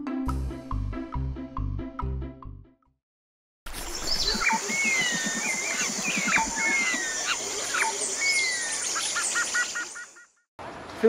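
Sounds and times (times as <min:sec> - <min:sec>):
birds whistling and chirping: 0:03.9 - 0:10.3.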